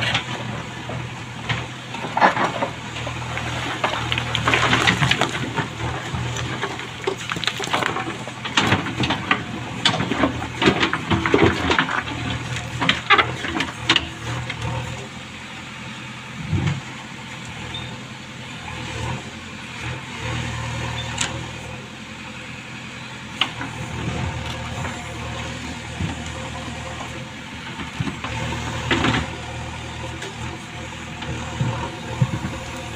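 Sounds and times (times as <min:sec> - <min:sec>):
diesel engine running under load: 0:00.0 - 0:32.9
stones knocking against bucket: 0:03.4 - 0:12.1.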